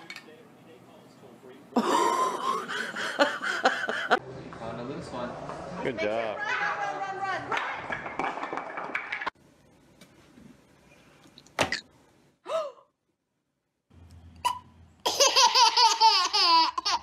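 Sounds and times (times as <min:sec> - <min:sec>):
wooden blocks clattering: 0:07.5 - 0:09.4
baby giggling: 0:15.1 - 0:17.0.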